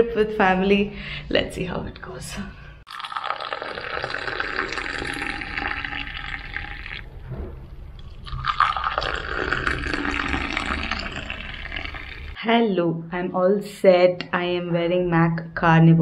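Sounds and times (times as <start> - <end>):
coffee pouring into steel tumbler: 2.9 - 7.1, 8.0 - 12.4.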